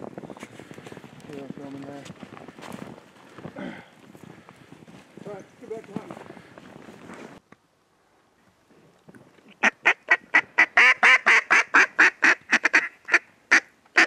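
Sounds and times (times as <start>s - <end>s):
duck quacking: 9.6s - 14.0s.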